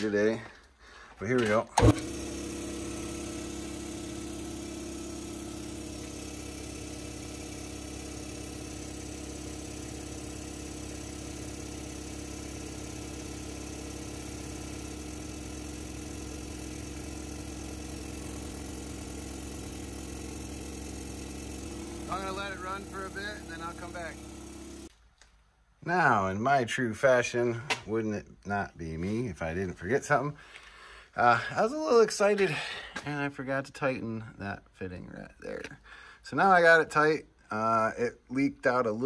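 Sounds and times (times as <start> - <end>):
air compressor running: 1.5 - 24.9.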